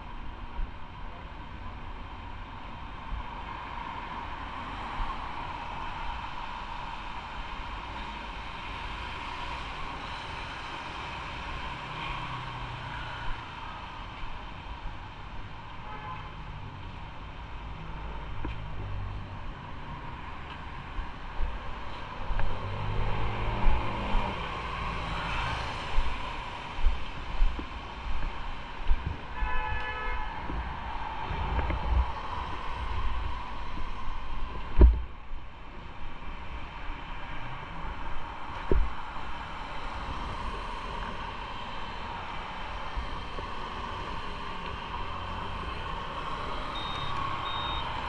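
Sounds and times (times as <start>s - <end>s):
traffic on wet street: 0.0s - 48.0s
car horn toot: 29.4s - 30.4s, 46.8s - 47.9s.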